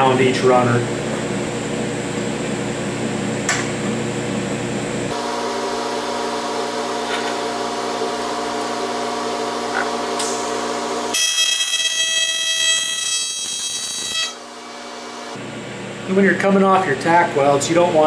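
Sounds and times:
electrical hum: 0.0s - 18.0s
welding arc buzzing: 4.6s - 15.4s.

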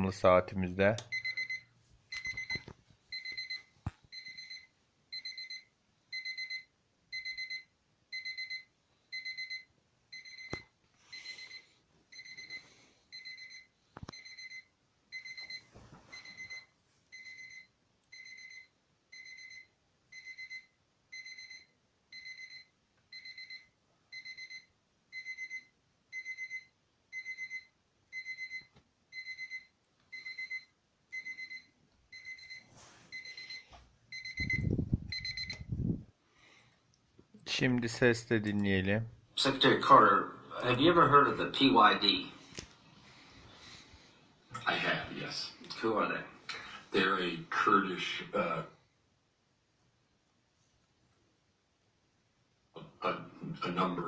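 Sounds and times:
alarm clock beeping: 1.1s - 35.7s.

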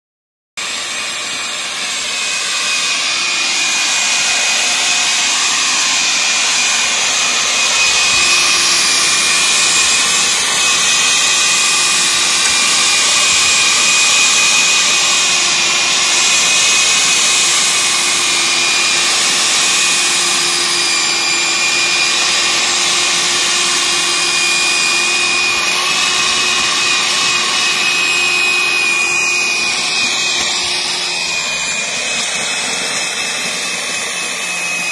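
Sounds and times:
electric tiller motor whine: 0.6s - 34.9s
tines churning soil: 0.6s - 34.9s.

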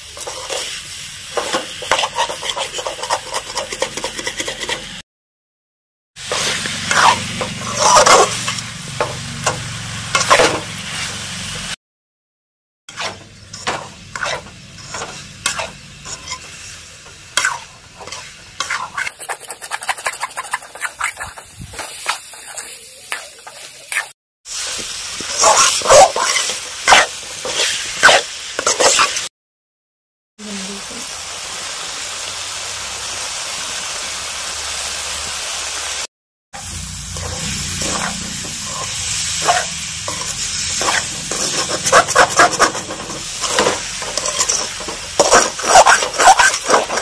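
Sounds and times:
metal ladle scraping a pan: 0.0s - 5.0s, 6.2s - 10.6s, 12.9s - 24.1s, 25.2s - 29.3s, 37.1s - 47.0s
pumpkin sizzling: 0.0s - 5.0s, 6.2s - 11.8s, 12.9s - 29.3s, 30.4s - 47.0s.

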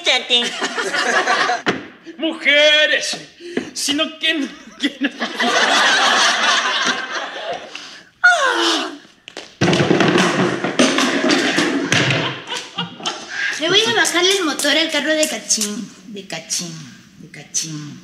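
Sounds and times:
people laughing: 0.4s - 1.7s, 4.3s - 8.0s, 11.4s - 14.2s.

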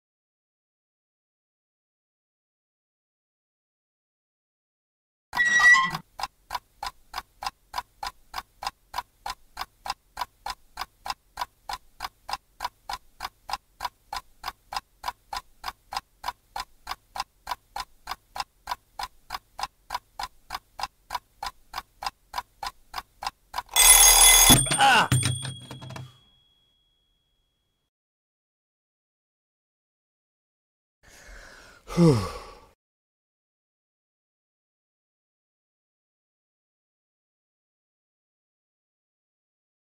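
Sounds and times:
clock ticking: 6.0s - 26.4s
alarm clock bell ringing: 23.7s - 27.4s.

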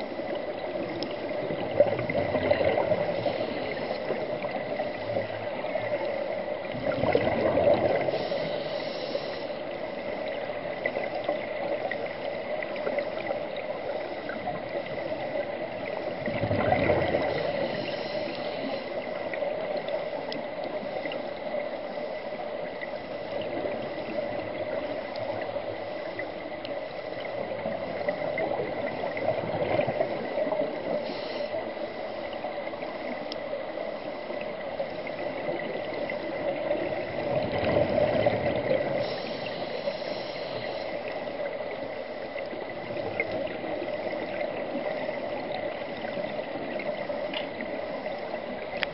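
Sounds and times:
underwater water noise: 0.0s - 48.9s
scuba exhalation bubbles: 6.7s - 8.1s, 16.2s - 17.3s.

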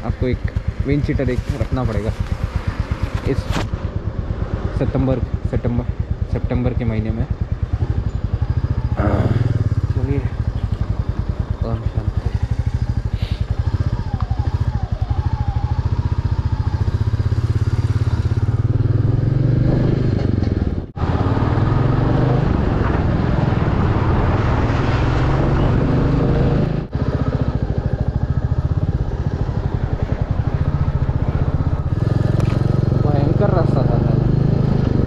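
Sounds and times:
motorcycle engine running: 0.0s - 24.7s, 25.4s - 35.0s
road and wind noise: 0.0s - 35.0s.

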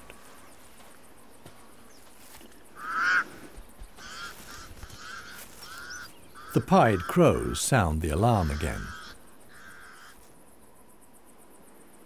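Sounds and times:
crows cawing: 2.6s - 10.3s.

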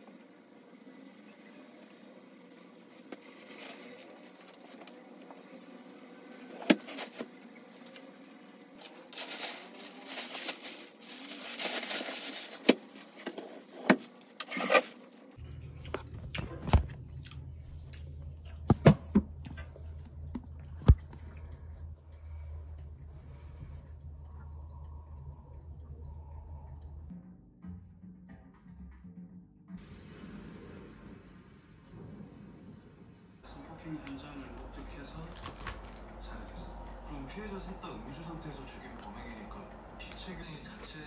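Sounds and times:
steady low hum: 15.2s - 27.6s, 29.9s - 41.0s
cloth rustling: 34.0s - 36.8s.

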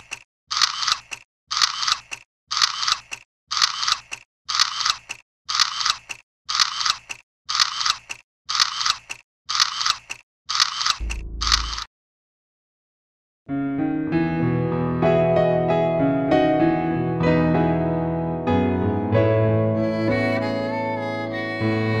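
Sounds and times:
mechanical clicking bursts: 0.0s - 11.9s
deep low rumble: 11.0s - 11.8s.

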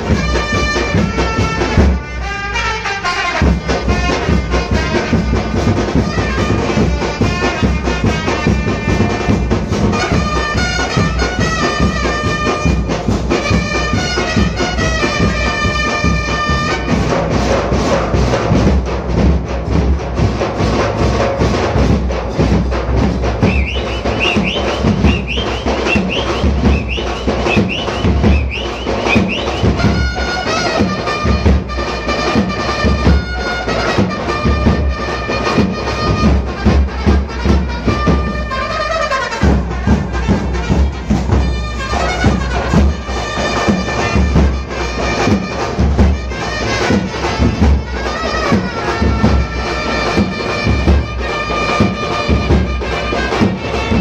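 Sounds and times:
brass band playing: 0.0s - 54.0s
heavy driving drums: 0.0s - 54.0s.

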